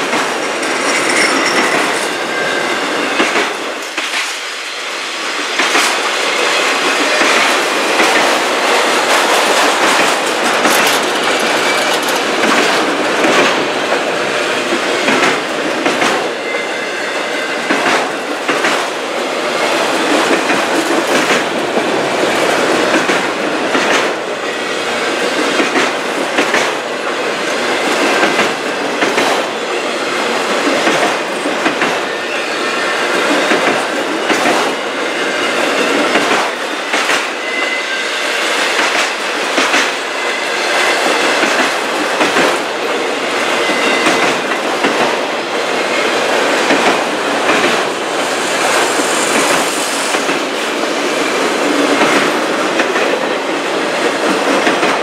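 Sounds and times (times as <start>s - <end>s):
train wheels rumbling on rail: 0.0s - 55.0s
wheels clicking over rail joints: 6.8s - 16.3s, 19.6s - 24.3s, 25.1s - 29.5s, 41.1s - 50.9s, 51.6s - 55.0s
faint high wheel squeal: 16.4s - 17.7s, 37.3s - 38.6s.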